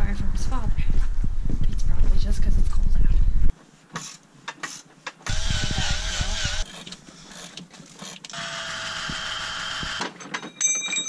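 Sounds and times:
power tool whining: 5.3 - 10.2.

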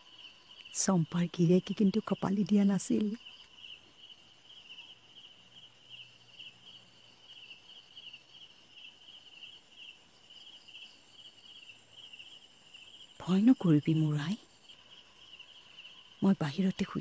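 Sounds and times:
crickets chirping: 0.0 - 17.0.

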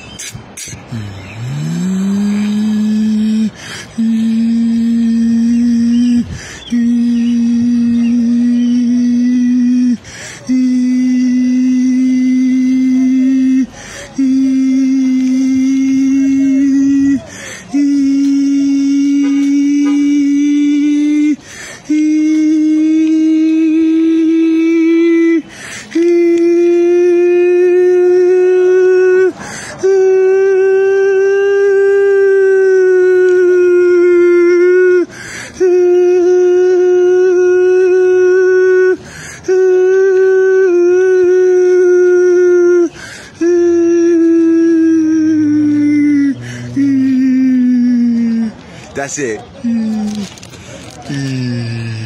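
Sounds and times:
man holding high note: 0.2 - 48.7
short breath: 3.5 - 4.3, 6.2 - 6.8, 10.0 - 10.6, 13.7 - 14.2, 17.2 - 17.8, 21.4 - 21.9, 25.4 - 26.0, 29.4 - 29.8, 35.1 - 35.6, 39.0 - 39.5, 42.9 - 43.4, 46.4 - 46.8, 49.8 - 52.0.

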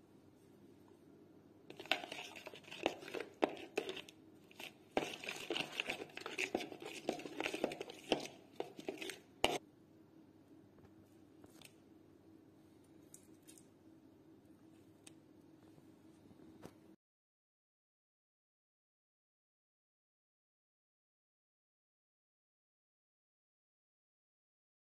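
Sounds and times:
spoon stirring in plastic bowl: 1.7 - 9.6.

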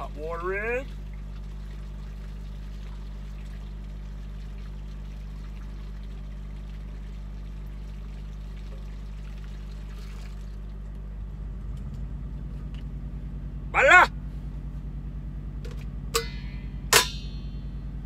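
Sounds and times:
low hum: 0.0 - 18.0
water trickling into a bag: 0.1 - 11.0.

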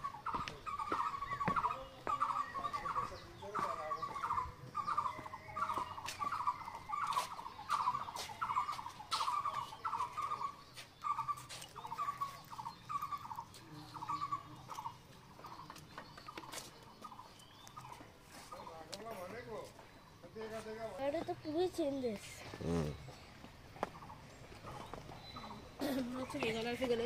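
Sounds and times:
animal calling: 0.0 - 15.6, 22.2 - 23.3.

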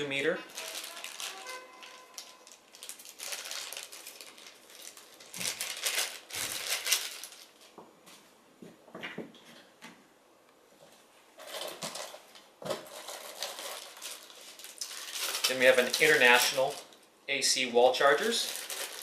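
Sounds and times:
plastic bag crinkling: 0.0 - 7.8, 11.4 - 17.0, 17.9 - 19.0.

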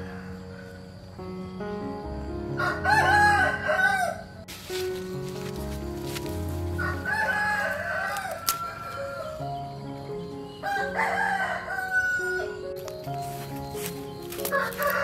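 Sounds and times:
rooster crowing: 0.0 - 1.0, 2.6 - 4.4, 6.8 - 9.6, 10.6 - 12.6, 14.5 - 15.0
soft background music: 0.0 - 15.0.

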